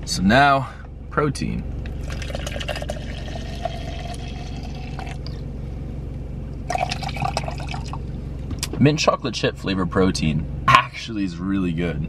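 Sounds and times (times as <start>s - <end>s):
steady low hum: 0.0s - 12.0s
water pouring into plastic cup: 2.0s - 5.3s, 6.7s - 8.0s.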